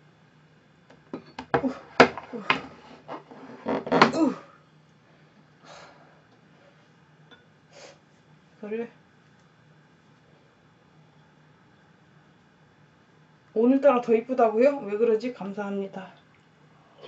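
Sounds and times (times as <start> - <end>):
wooden board knocking and clattering: 3.6 - 4.2.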